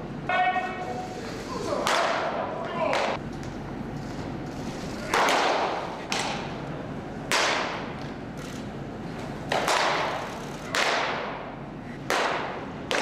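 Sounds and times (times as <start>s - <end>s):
baseballs smacking into mitts: 5.0s - 6.5s, 7.3s - 7.9s, 9.5s - 11.4s, 12.0s - 13.0s.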